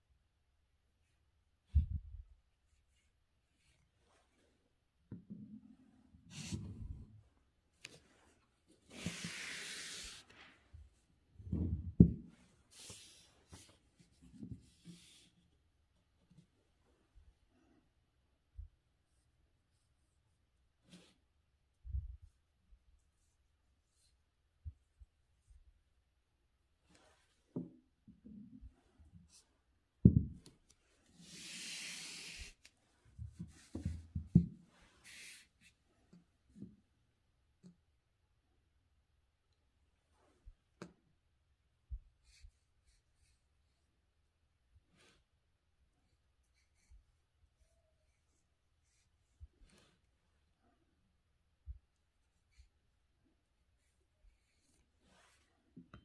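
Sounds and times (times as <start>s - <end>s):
paper sliding rustle: 7.9s - 10.7s, 31.1s - 32.8s, 34.8s - 35.5s
thumps and knocks on desk: 30.0s - 30.5s.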